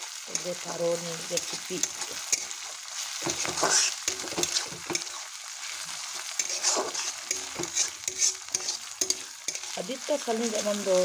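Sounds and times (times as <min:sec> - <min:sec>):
meat and onions sizzling: 0:00.0 - 0:11.0
metal spatula scraping pan: 0:01.2 - 0:09.8.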